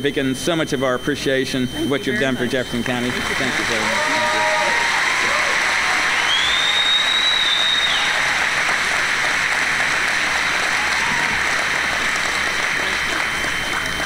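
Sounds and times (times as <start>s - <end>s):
audience applauding: 2.8s - 14.0s.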